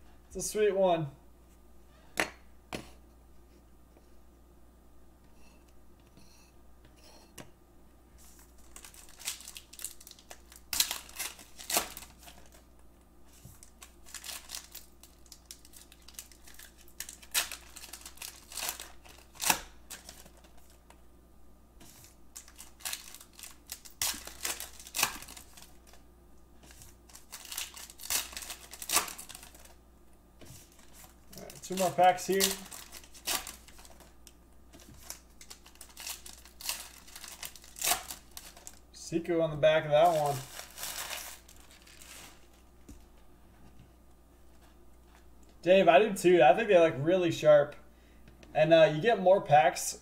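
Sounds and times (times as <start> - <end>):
card pack wrappers tearing: 8.2 - 12.7, 13.4 - 20.8, 21.9 - 26.0, 26.6 - 29.8, 30.6 - 38.8, 40.0 - 42.6.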